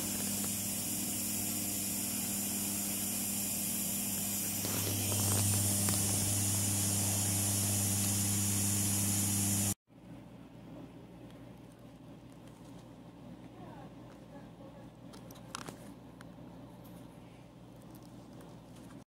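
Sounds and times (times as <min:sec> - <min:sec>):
hiss of air assist: 0:00.0 - 0:09.8
electrical hum of fans: 0:00.0 - 0:19.0.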